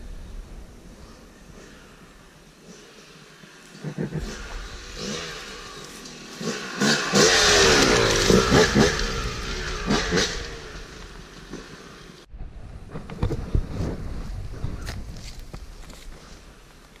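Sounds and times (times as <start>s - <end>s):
dirt bike engine revving: 2.7s - 12.3s.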